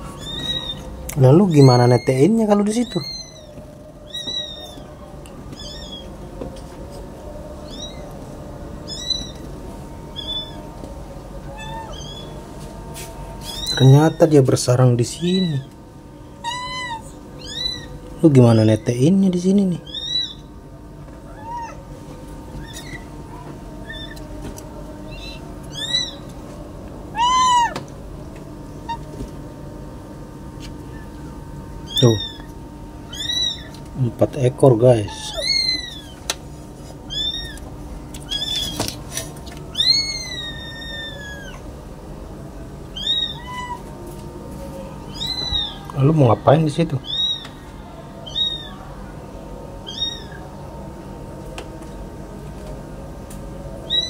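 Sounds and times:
kittens mewing: 0:00.0 - 0:06.2, 0:07.4 - 0:08.2, 0:08.8 - 0:09.5, 0:11.4 - 0:12.4, 0:16.3 - 0:18.0, 0:19.8 - 0:20.5, 0:21.2 - 0:21.9, 0:22.6 - 0:24.3, 0:25.0 - 0:26.3, 0:27.1 - 0:28.0, 0:28.8 - 0:29.3, 0:31.8 - 0:33.9, 0:34.9 - 0:36.3, 0:36.9 - 0:41.8, 0:42.9 - 0:44.0, 0:45.0 - 0:46.0, 0:47.0 - 0:49.0, 0:49.8 - 0:50.6.

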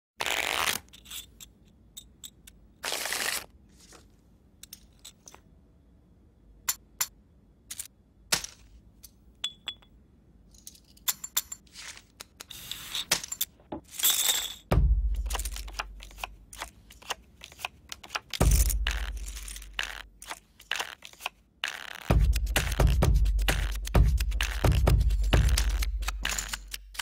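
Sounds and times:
poker chips clicking: 0:15.2 - 0:22.1.

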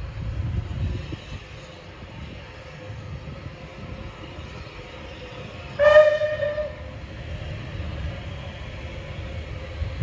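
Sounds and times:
low rumble of train: 0:00.0 - 0:10.0
steam whistle blast: 0:05.8 - 0:06.9.

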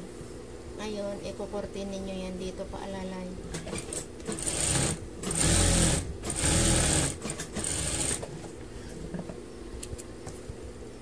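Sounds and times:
sewing machine whirring: 0:03.7 - 0:08.3.

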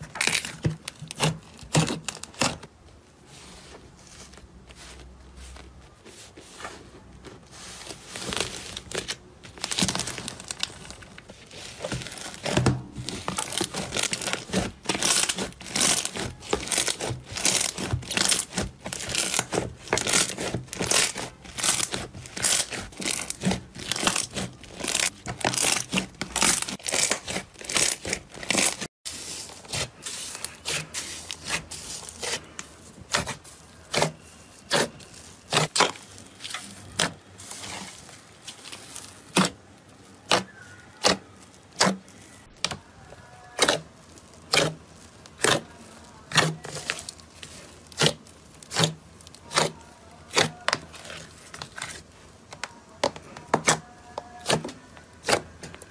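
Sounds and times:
slime crackling and popping: 0:00.0 - 0:02.7, 0:08.0 - 0:55.9.

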